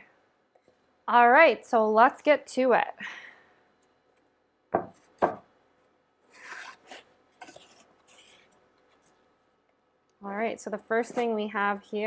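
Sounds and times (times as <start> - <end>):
cardboard lid scraping and rustling: 6.3 - 8.4.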